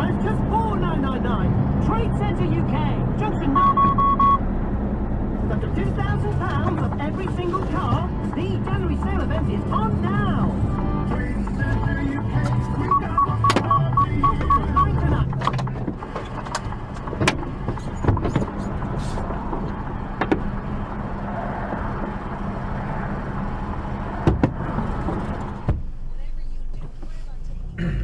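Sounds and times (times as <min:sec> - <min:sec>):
truck engine running: 0:00.0 - 0:26.8
short high beeps: 0:03.5 - 0:04.4, 0:12.8 - 0:15.1.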